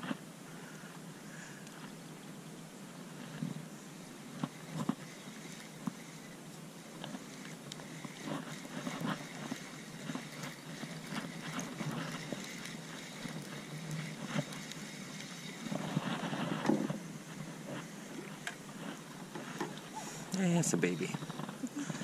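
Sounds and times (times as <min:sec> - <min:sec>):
fishing reel being cranked: 0:04.5 - 0:16.5.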